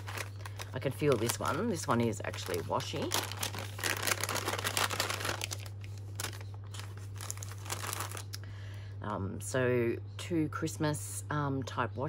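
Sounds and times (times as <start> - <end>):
paper bag crinkling and rustling: 0.0 - 8.4.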